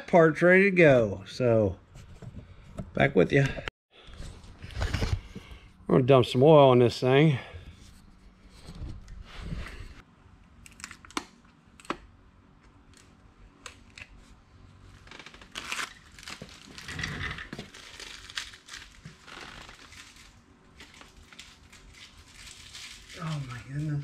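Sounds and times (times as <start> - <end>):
plastic wrapping crinkling: 14.9 - 24.0.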